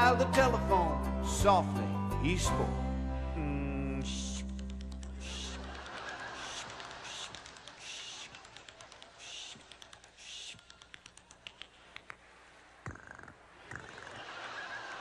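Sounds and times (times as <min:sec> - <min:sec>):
hissing bursts: 0:06.4 - 0:11.0.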